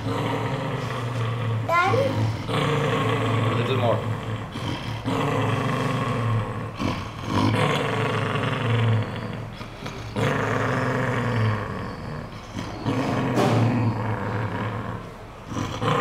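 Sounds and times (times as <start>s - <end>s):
dog growling: 0.0s - 16.0s.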